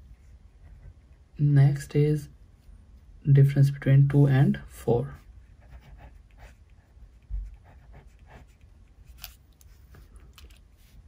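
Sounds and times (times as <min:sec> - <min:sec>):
pen writing on paper: 0:05.6 - 0:09.2.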